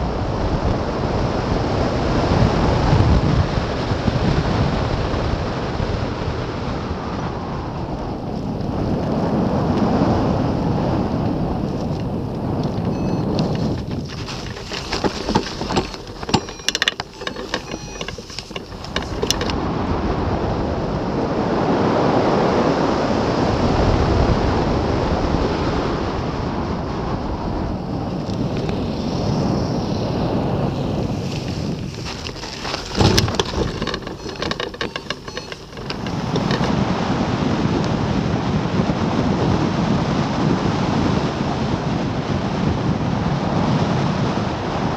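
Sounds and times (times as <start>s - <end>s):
wind roaring over microphone: 0.0s - 44.9s
knocks and clatter: 13.0s - 19.6s, 31.4s - 36.7s.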